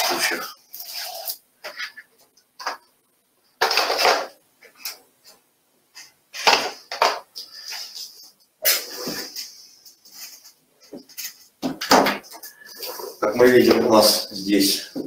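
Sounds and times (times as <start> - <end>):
box and packaging being handled: 3.6 - 5.0.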